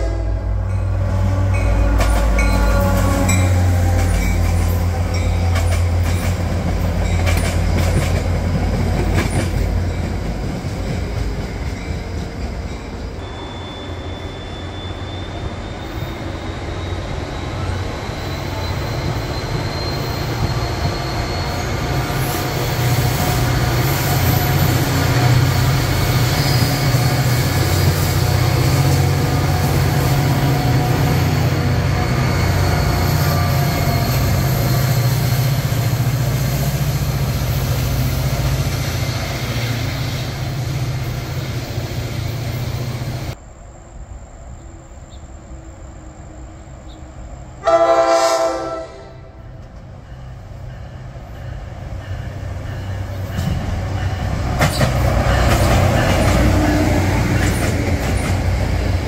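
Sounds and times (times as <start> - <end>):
train wheel and rail noise: 0.0 - 59.0
high wheel squeal: 13.0 - 43.4.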